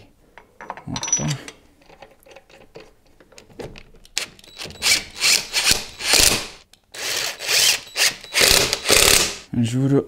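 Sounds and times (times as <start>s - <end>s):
impact wrench bursts: 4.6s - 9.5s.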